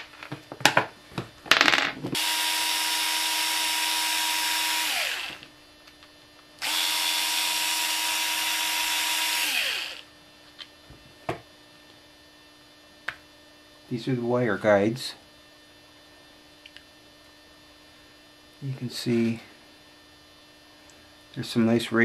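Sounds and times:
cordless drill whining: 2.2s - 5.5s, 6.6s - 10.1s.

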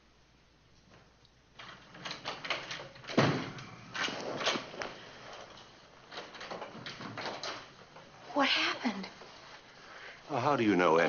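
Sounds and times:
door opening and closing: 1.6s - 8.1s.

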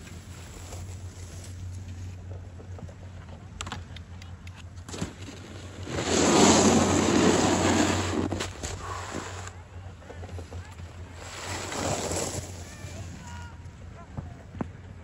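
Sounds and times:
snowboard edge scraping snow: 0.0s - 2.2s, 4.9s - 9.5s, 10.2s - 13.4s.

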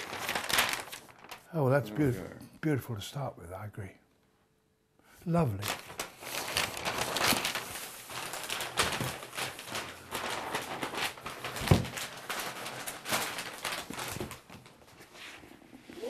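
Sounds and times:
wrapping paper crackling: 0.0s - 1.8s, 5.3s - 16.0s.

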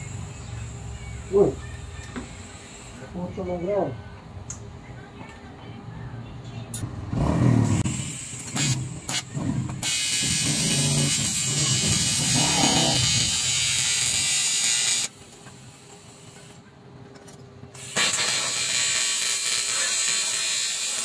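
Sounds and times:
welding arc buzzing: 7.1s - 16.4s, 17.8s - 21.0s.

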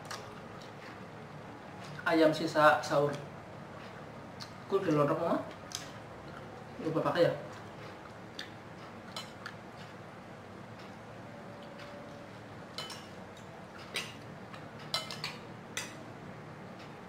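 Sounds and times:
spoons clinking on plates: 12.8s - 13.2s, 14.8s - 16.0s.

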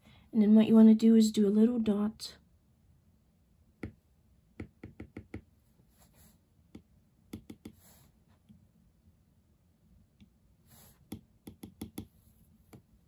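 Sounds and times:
stylus tapping on glass screen: 3.8s - 4.0s, 4.6s - 5.5s, 6.7s - 7.8s, 11.1s - 12.1s
faint brushing hisses: 10.6s - 11.2s.

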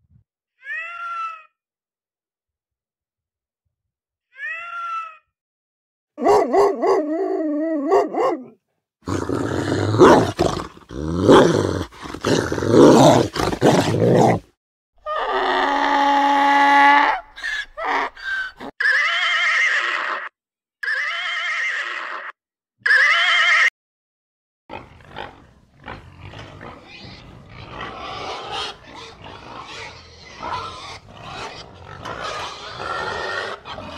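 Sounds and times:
cat meowing: 0.6s - 1.5s, 4.4s - 5.2s
donkey braying: 9.1s - 14.4s
horse whinnying: 17.4s - 23.7s.

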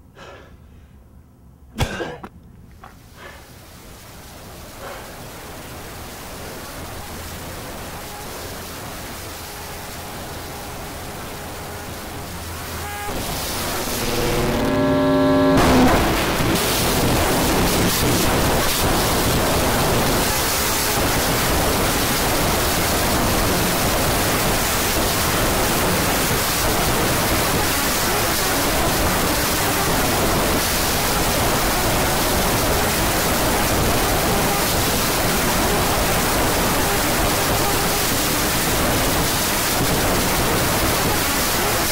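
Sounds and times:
loud steady rushing noise: 4.0s - 41.9s
low hum: 6.8s - 18.4s
rising run of tones: 12.0s - 16.2s.

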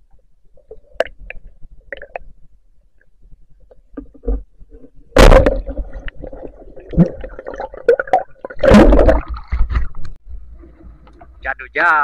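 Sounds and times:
underwater gurgling and knocking: 3.6s - 10.2s.

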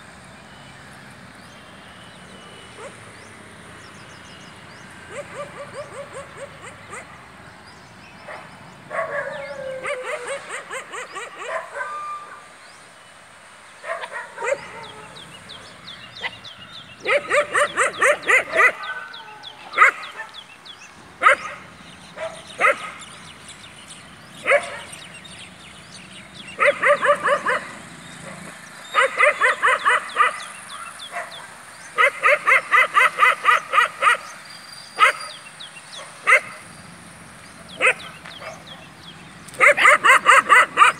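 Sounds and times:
dogs yipping and barking: 2.7s - 3.1s, 5.0s - 7.3s, 8.2s - 12.6s, 13.8s - 20.5s, 21.2s - 23.4s, 24.2s - 25.4s, 26.0s - 36.9s, 37.6s - 40.9s.

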